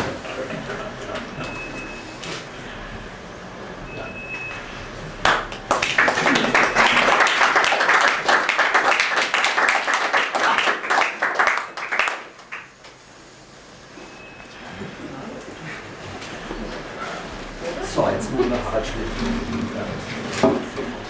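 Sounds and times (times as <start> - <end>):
small group applauding: 5.2 - 12.8.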